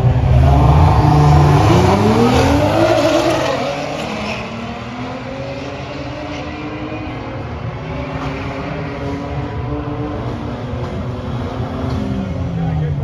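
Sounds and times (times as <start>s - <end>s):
car engines revving: 0.0s - 13.0s.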